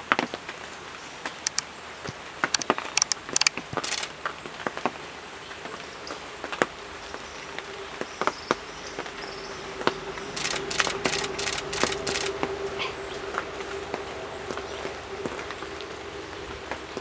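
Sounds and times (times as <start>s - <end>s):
high-pitched insect drone: 0.0s - 16.7s
light clicks and ticks: 1.3s - 1.7s, 2.4s - 5.0s
faint low hum: 5.7s - 17.0s.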